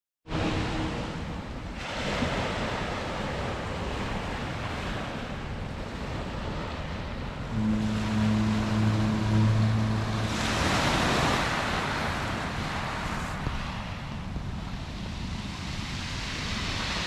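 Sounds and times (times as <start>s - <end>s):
low steady drone: 0.3s - 1.8s, 7.2s - 14.7s
waves washing over pebbles: 0.3s - 17.0s
wind on microphone: 0.3s - 17.0s.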